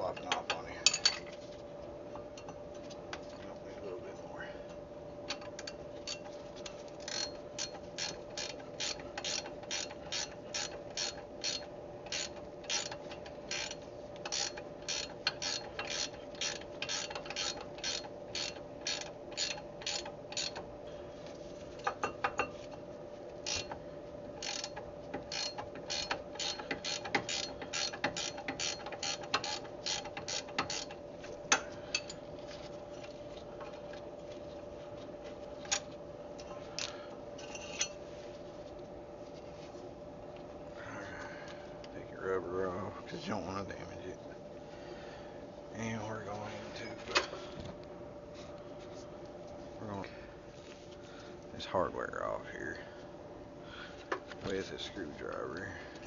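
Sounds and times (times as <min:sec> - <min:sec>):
ratchet wrench clicking: 0:07.0 - 0:20.6, 0:24.4 - 0:32.2.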